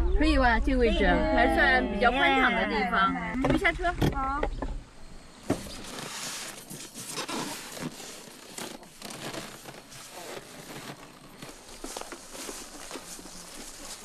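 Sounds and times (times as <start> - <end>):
plastic bags rustling: 5.7 - 14.0.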